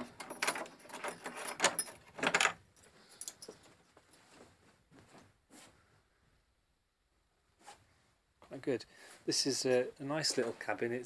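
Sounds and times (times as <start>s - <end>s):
small metal objects clicking and jingling: 0.0s - 3.7s.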